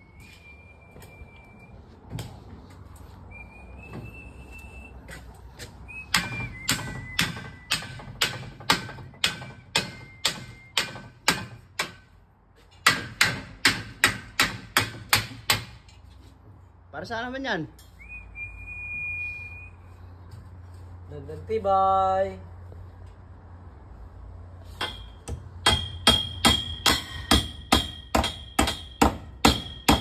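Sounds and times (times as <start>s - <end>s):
hammer driving nails into timber: 6.1s - 12.1s, 12.8s - 15.9s, 24.8s - 30.0s.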